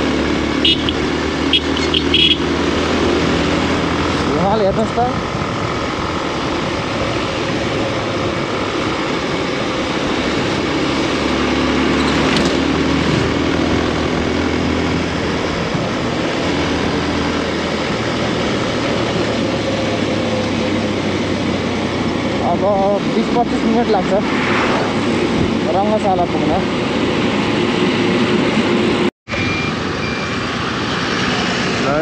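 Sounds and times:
motorcycle engine running: 0.0 - 24.0
wind rushing over microphone: 0.0 - 29.1.

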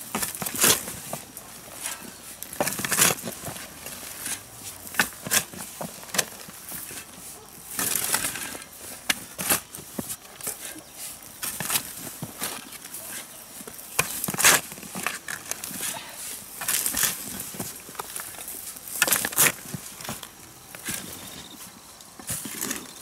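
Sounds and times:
hand tool digging into soil: 0.0 - 23.0.

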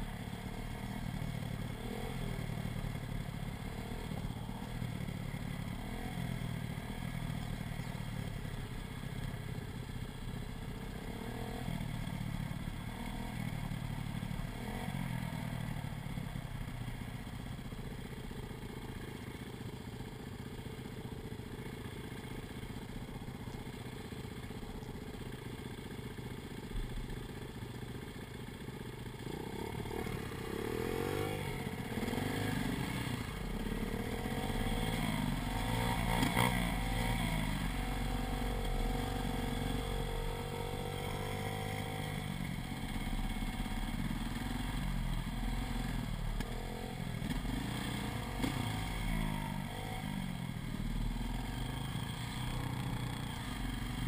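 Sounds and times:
small pit bike engine: 0.0 - 54.0
dirt bike engine revving: 29.2 - 54.0.

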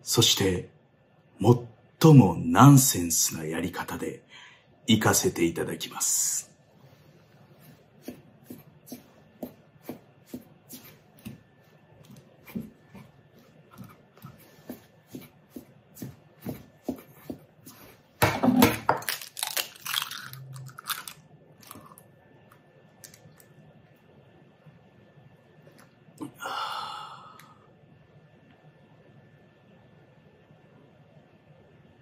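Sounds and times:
egg shell cracking open: 18.8 - 22.0.

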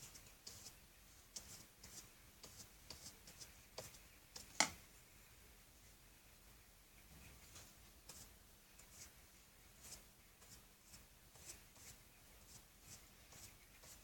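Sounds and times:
paintbrush scratching on paper: 0.0 - 4.6, 7.4 - 14.0.

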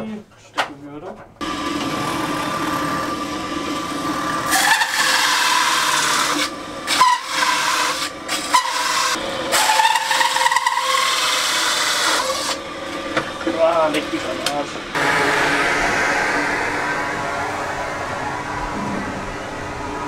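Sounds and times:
drill press motor running: 1.4 - 13.5
hole saw cutting with whine: 1.4 - 20.0.

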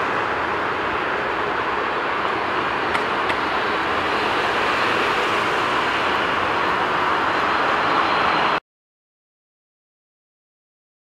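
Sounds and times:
jet airliner taking off: 0.0 - 8.6.

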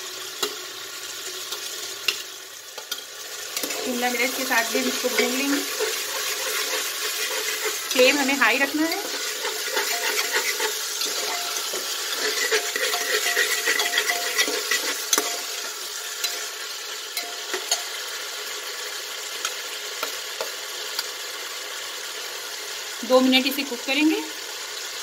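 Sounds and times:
vegetables sizzling in oil: 0.0 - 25.0
ladle scraping metal pot: 3.6 - 15.5.

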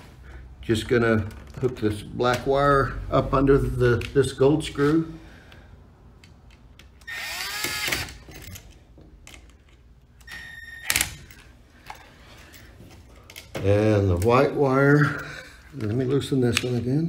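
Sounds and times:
cordless drill whirring: 7.0 - 8.3.

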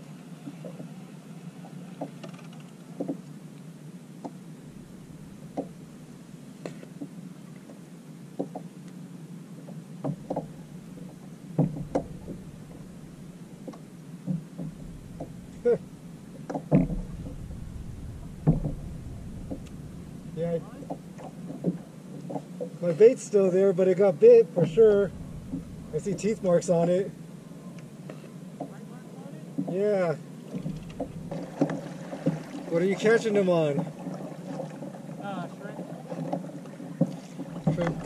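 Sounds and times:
fishing gear knocking on plastic hull: 4.9 - 5.9, 11.6 - 21.8, 37.6 - 38.0.

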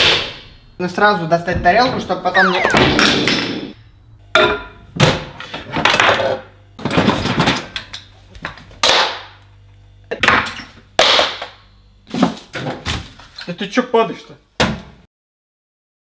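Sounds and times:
cupboard and microwave doors banging: 14.6 - 15.0.

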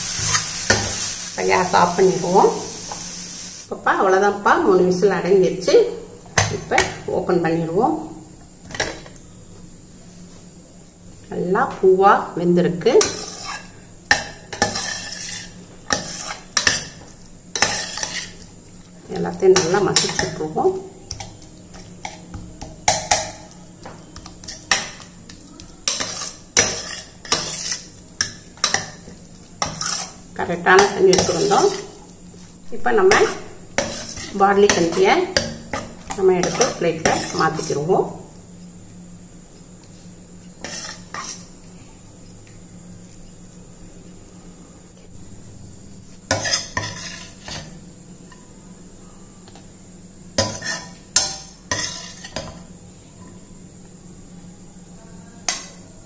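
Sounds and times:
spoon scraping steel pot: 13.0 - 13.7, 14.5 - 16.9, 17.6 - 18.4, 25.8 - 28.9, 29.6 - 30.2, 30.8 - 32.0, 46.3 - 47.6, 51.8 - 52.4
spoon scraping a metal pan: 13.0 - 18.5, 19.5 - 20.5, 24.2 - 25.1, 25.8 - 32.1, 33.0 - 37.9, 40.6 - 41.5, 46.3 - 47.8, 50.4 - 52.5.

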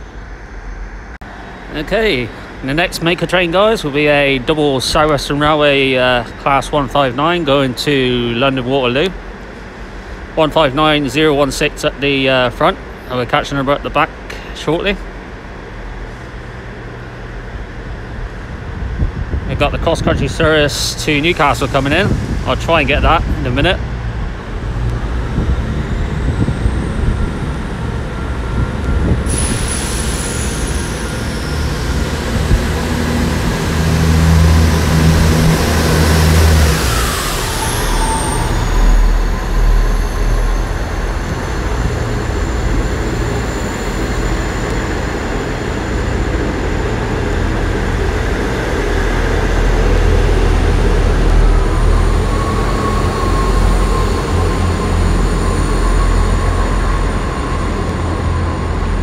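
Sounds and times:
diesel train engines rumbling: 0.0 - 59.0
train wheels on rails: 19.6 - 59.0.

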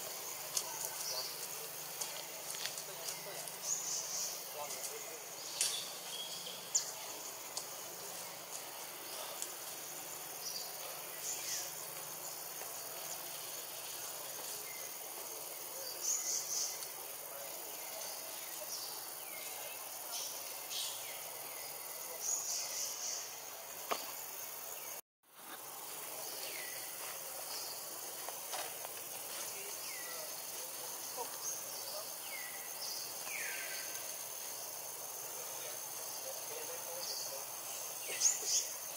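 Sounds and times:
high chirps and calls: 0.0 - 13.8
insect drone: 0.0 - 38.9.

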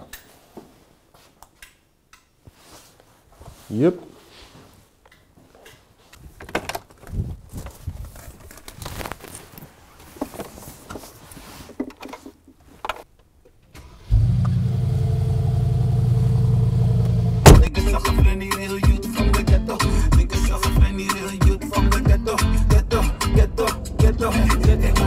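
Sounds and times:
footsteps: 2.4 - 12.8
car engine starting and idling: 13.8 - 18.0
car door opening: 17.0 - 17.7
handling noise: 17.4 - 17.7
sharp thump: 17.4 - 17.8.

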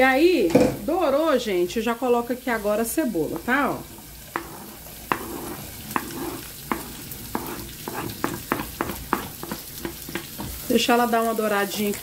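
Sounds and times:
frying sizzle: 0.0 - 12.0
wooden spoon knocking: 4.3 - 10.7.

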